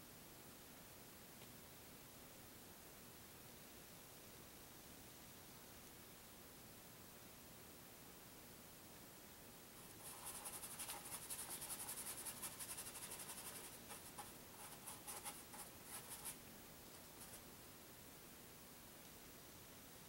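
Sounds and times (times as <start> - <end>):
paintbrush scratchy strokes: 9.8 - 16.4, 17.0 - 17.5.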